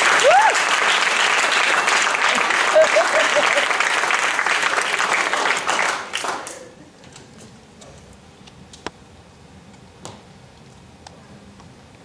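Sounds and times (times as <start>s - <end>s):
audience applause: 0.0s - 6.8s.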